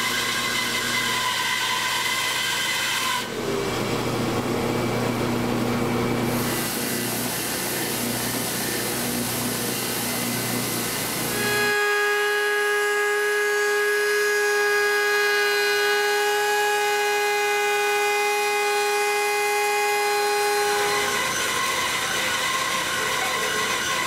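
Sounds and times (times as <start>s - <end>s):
rough noisy machine: 0.0s - 24.0s
router high whine: 3.2s - 24.0s.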